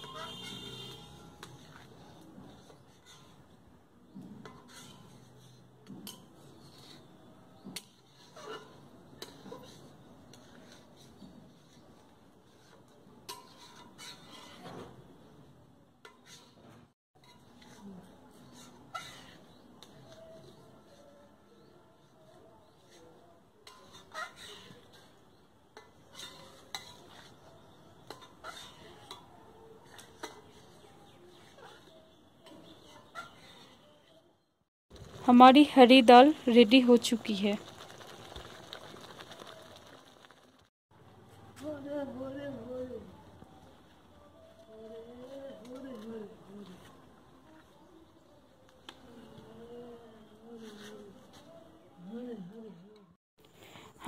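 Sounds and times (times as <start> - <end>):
metal ladle scraping a pot: 0.0 - 3.6, 4.4 - 7.2, 7.8 - 11.9, 12.5 - 14.9, 16.0 - 20.2, 23.6 - 30.8, 31.4 - 33.9.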